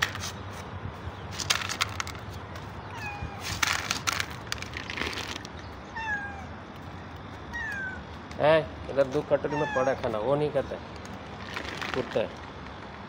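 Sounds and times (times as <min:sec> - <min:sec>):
cats crunching dry kibble: 0:01.3 - 0:02.7, 0:03.4 - 0:05.6, 0:10.9 - 0:13.0
cats meowing: 0:02.9 - 0:03.6, 0:05.8 - 0:06.6, 0:07.5 - 0:08.2, 0:09.2 - 0:10.4.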